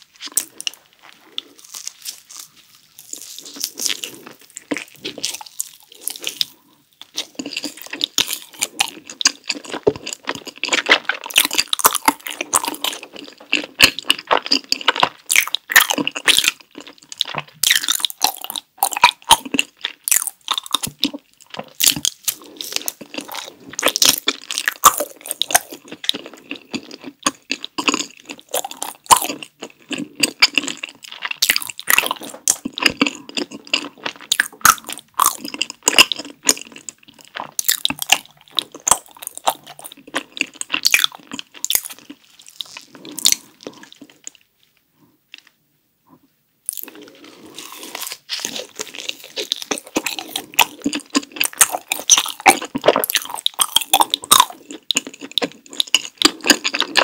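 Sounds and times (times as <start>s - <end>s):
chewing with wet mouth clicks: 46.7s - 57.0s.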